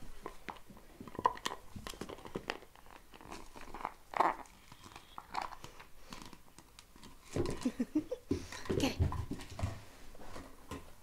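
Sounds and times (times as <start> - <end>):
dog chewing plastic toy: 0.2 - 7.7.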